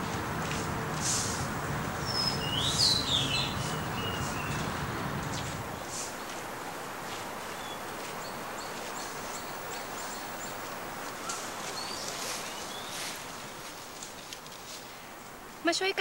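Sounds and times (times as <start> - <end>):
birds chirping: 0.0 - 6.3, 7.5 - 13.2
background hiss: 0.0 - 16.0
rising bird calls: 2.0 - 5.6.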